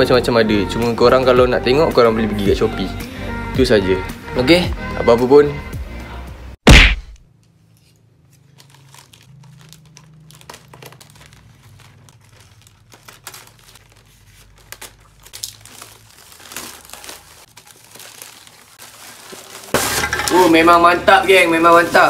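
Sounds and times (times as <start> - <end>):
bubble wrap crumpling and tearing: 8.4 - 20.8.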